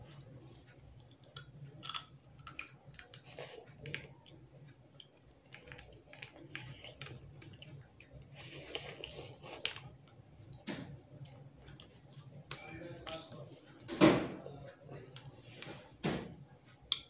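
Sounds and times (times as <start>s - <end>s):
wet chewing: 1.0s - 10.6s.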